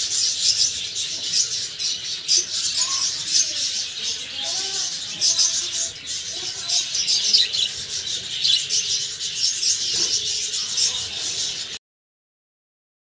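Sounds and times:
budgerigar chirping: 5.4s - 11.0s.

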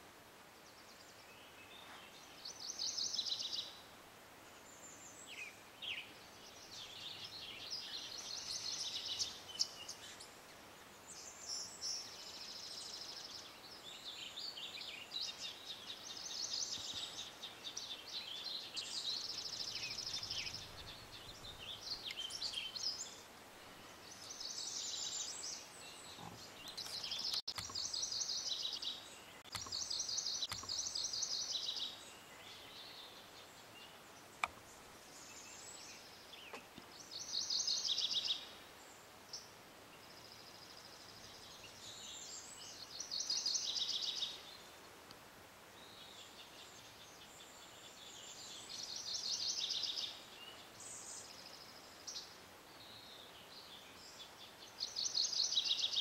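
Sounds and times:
faint background hiss: 0.0s - 56.0s
songbirds trilling: 4.6s - 45.1s.

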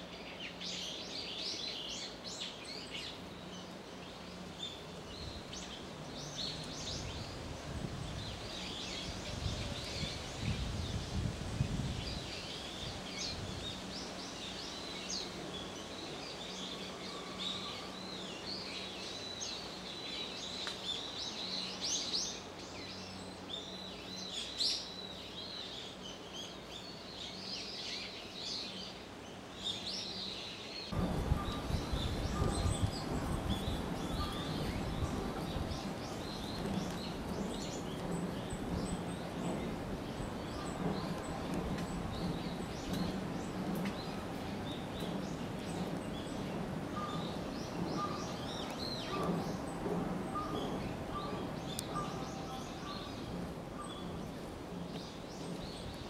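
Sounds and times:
small birds chirping: 0.0s - 56.0s
low rumbling noise: 30.7s - 56.0s.

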